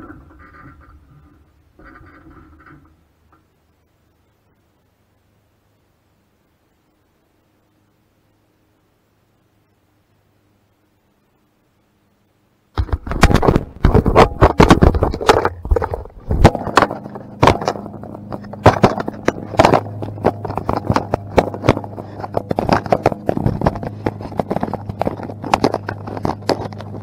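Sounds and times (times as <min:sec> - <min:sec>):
fingers rubbing on camera microphone: 0:12.8 - 0:27.0
riding mower engine running: 0:13.2 - 0:27.0.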